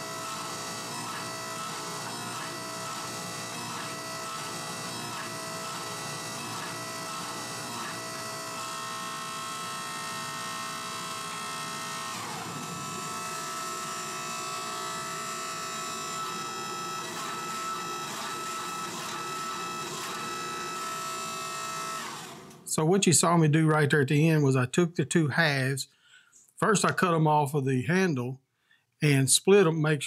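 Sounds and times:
hydraulic press motor whine: 0.0s - 22.8s.

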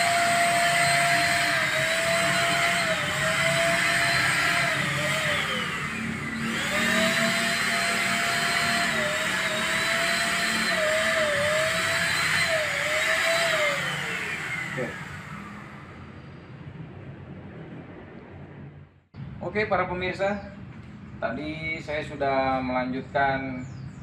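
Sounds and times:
paint spray gun motor whine: 0.0s - 16.2s.

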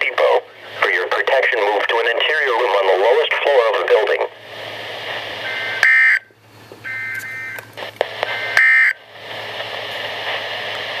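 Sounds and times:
radio hiss: 0.0s - 5.9s, 6.7s - 11.0s
shrill two-tone digital signal: 6.9s - 7.6s, 8.4s - 9.0s.

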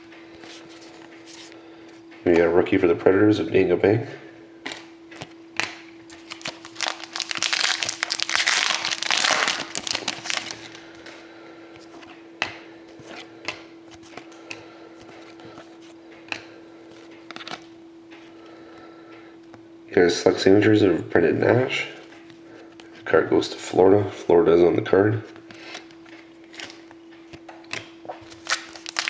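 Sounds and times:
faint steady hum: 0.0s - 29.0s
cards sliding and rustling: 0.4s - 1.6s.

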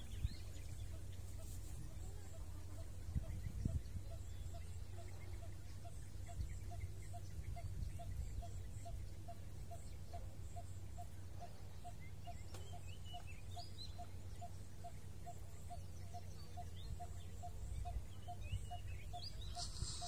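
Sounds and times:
bird chirps: 2.8s - 20.0s
steady low rumble: 13.3s - 20.0s.

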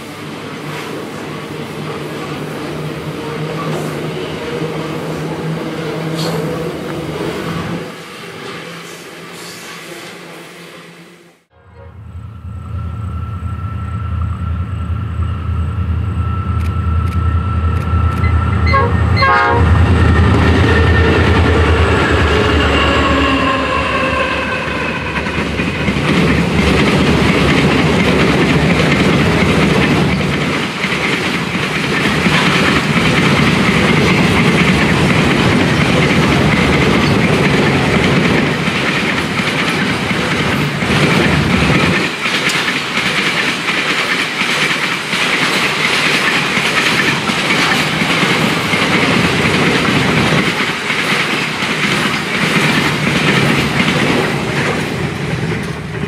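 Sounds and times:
train horn: 8.8s - 25.4s
diesel locomotive rumble: 11.5s - 44.4s
wagons clickety-clack rolling: 25.2s - 56.0s.

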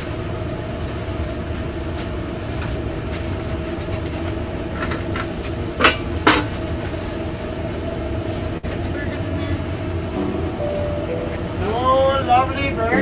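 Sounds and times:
kitchen equipment humming: 0.0s - 13.0s
cookware clattering: 4.8s - 6.5s.

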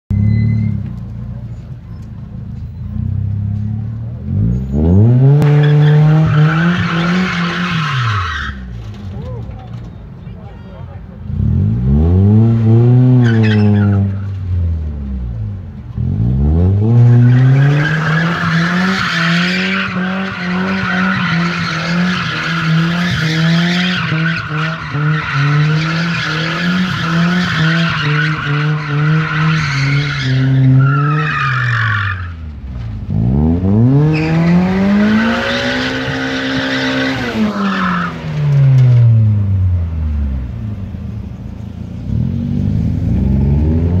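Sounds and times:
car engine revving high: 11.3s - 14.2s, 33.1s - 40.8s.

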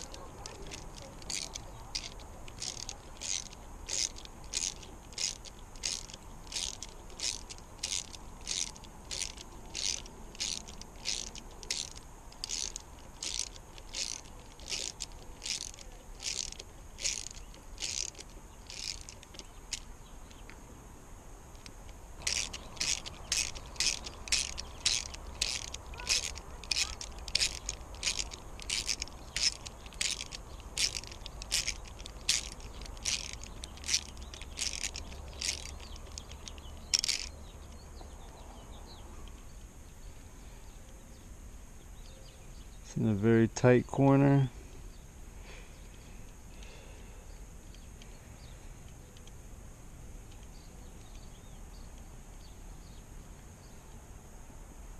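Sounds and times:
socket ratchet clicking: 0.0s - 20.5s, 21.6s - 37.4s.

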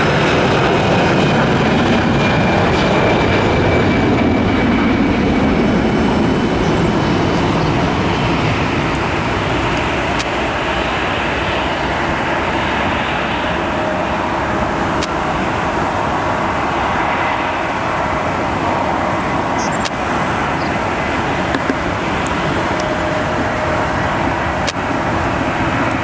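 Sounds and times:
jet engines rushing: 0.0s - 26.0s
faint steady hum: 6.0s - 26.0s.

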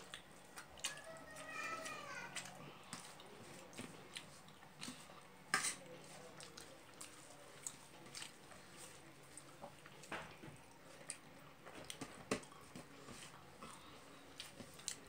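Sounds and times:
chewing and lip smacks: 0.0s - 1.1s, 13.3s - 15.0s.

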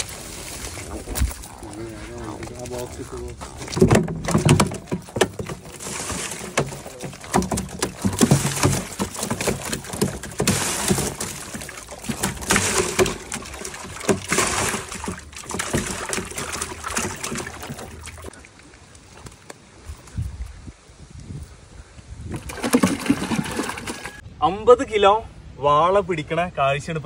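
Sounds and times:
fish flapping and slapping: 2.4s - 18.4s, 22.3s - 24.2s.

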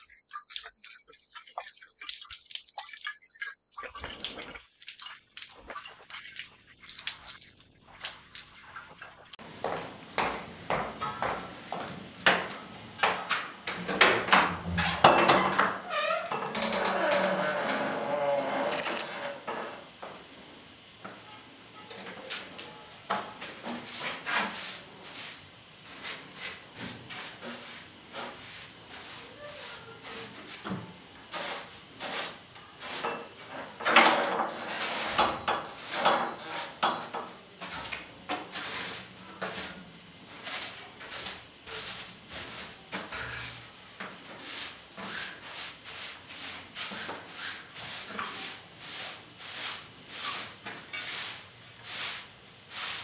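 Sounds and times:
broom sweeping tiled floor: 22.1s - 53.0s.

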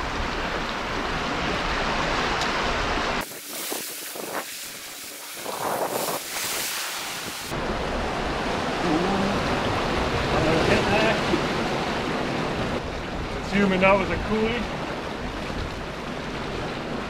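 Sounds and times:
wind rumbling on microphone: 0.0s - 17.0s
sea swell washing over rocks: 1.2s - 8.8s.

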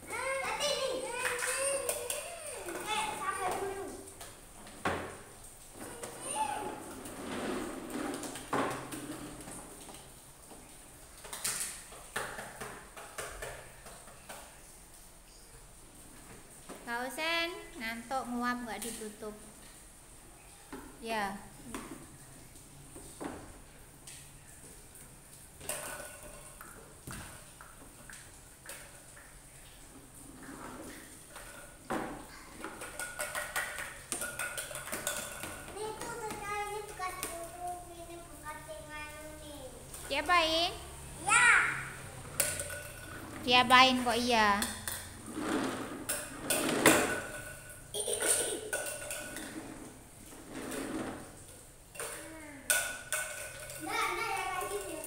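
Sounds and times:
plastic toys knocking and scraping: 4.7s - 10.0s, 11.2s - 14.5s, 30.2s - 37.5s, 42.2s - 55.0s
plastic toy truck clattering on tile: 30.4s - 35.8s, 42.3s - 43.4s, 44.6s - 51.3s.

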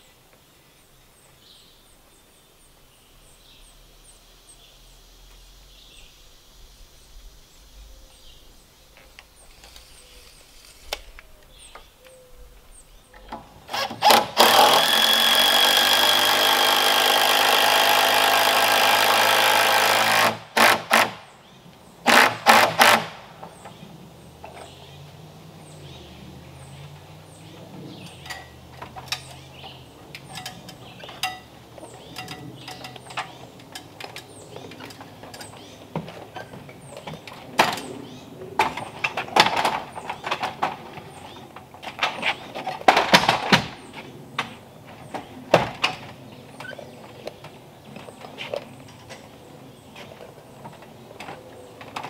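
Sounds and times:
power tool burst: 13.7s - 21.4s, 22.1s - 23.3s.

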